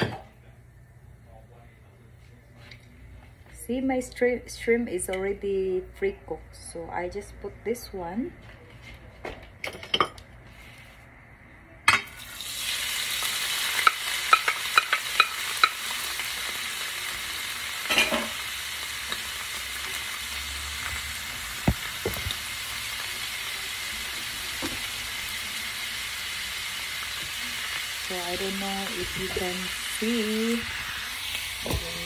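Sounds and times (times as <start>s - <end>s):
shrimp sizzling in oil: 12.1s - 32.0s.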